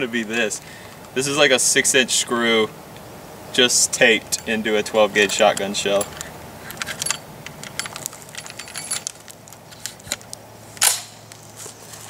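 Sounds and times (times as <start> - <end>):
shotgun metallic clicks and rattles: 5.3 - 11.2.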